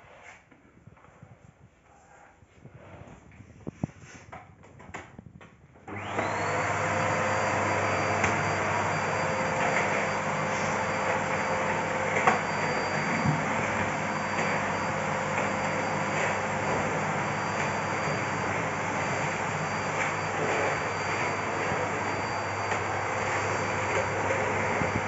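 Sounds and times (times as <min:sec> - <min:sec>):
vacuum cleaner motor whining: 0:05.8 - 0:25.0.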